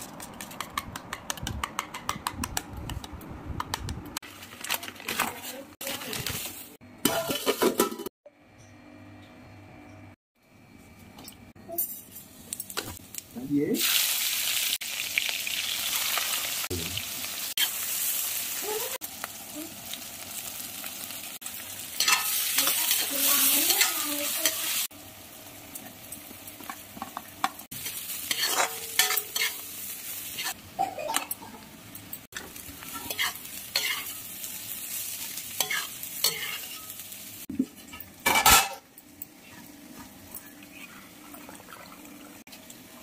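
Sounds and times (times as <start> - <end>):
food sizzling in pan: 11.9 - 43.0
spatula scraping pan: 27.8 - 29.7, 32.9 - 34.2, 35.6 - 37.0.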